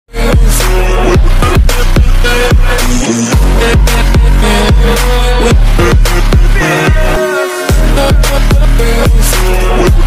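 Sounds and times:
electronic dance music: 0.1s - 10.0s.

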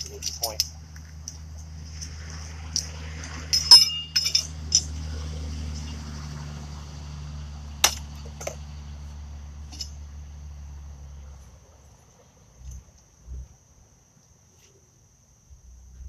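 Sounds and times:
insect trill: 0.0s - 16.0s
steady low hum: 0.0s - 16.0s
steel horseshoes clinking: 3.5s - 5.9s, 7.8s - 8.6s, 9.7s - 10.0s.

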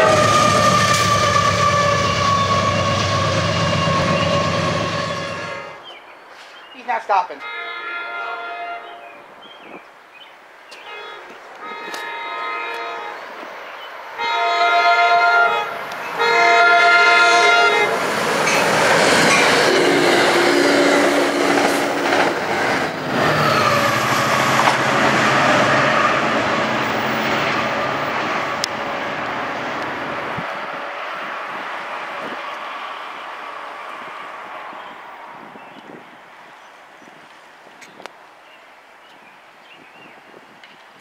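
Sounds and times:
train wheels rumbling on rails: 0.0s - 5.7s, 15.8s - 36.1s
train horn blasts: 0.0s - 5.8s, 7.4s - 9.2s, 10.8s - 13.3s, 14.2s - 18.0s, 23.3s - 27.0s.

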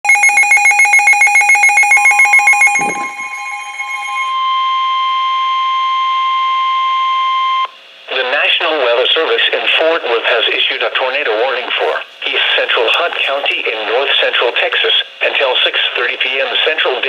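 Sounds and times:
steady high alarm tone: 0.0s - 5.0s
fast electronic beeping: 0.1s - 4.3s.

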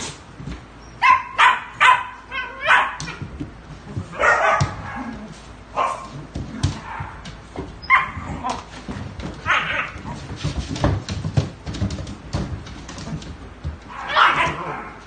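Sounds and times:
dogs yelping and barking: 0.8s - 3.3s, 4.1s - 5.2s, 7.8s - 8.7s, 9.4s - 10.2s, 13.9s - 15.0s.

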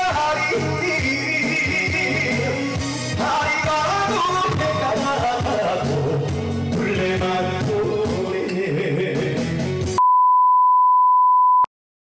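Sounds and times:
man singing into microphone: 0.0s - 9.6s
backing music: 0.0s - 10.0s
loud single-pitch beep: 10.0s - 11.7s.

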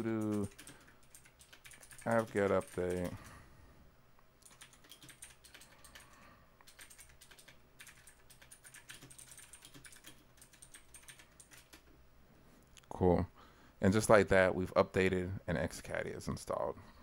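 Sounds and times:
typing on computer keyboard: 0.0s - 3.3s, 4.4s - 11.9s.

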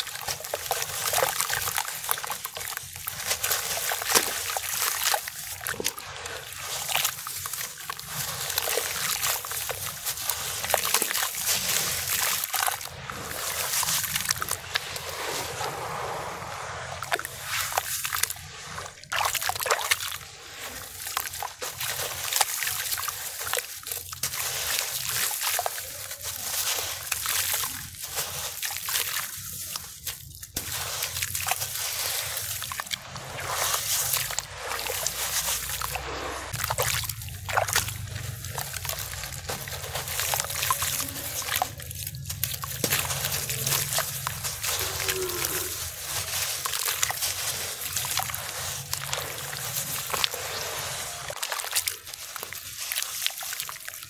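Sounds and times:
hands sloshing water in a tub: 0.0s - 54.0s
water splashing and dripping: 0.0s - 54.0s
wet dirt crumbling: 0.0s - 54.0s.

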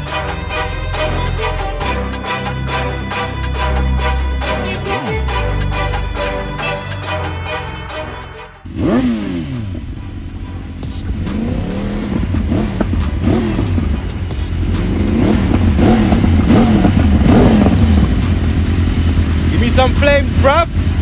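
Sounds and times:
motorcycle engine revving: 8.6s - 21.0s.

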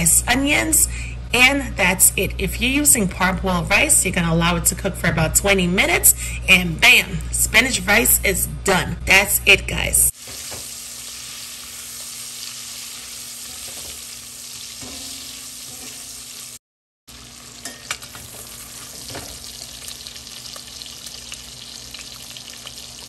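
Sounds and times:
sausage sizzling in oil: 10.1s - 23.0s.

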